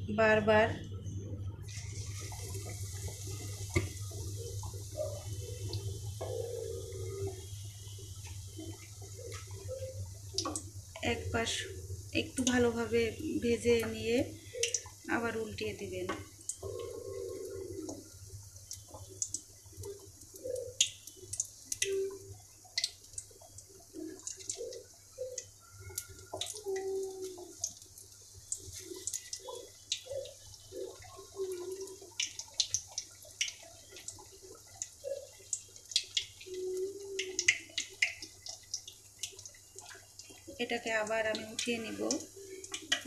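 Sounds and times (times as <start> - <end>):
batter sizzling in hot oil: 1.6 - 15.3.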